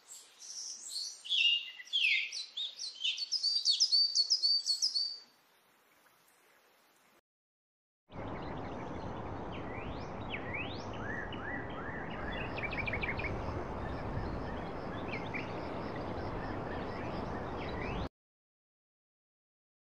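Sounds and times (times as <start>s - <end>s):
birds whistling and chirping: 0.1s - 5.2s, 8.3s - 18.1s
steady outdoor noise: 8.1s - 18.1s.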